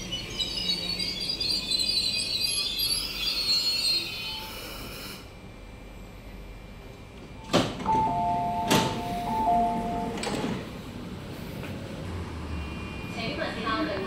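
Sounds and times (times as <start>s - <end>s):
train doors shutting: 7.1s - 12.1s.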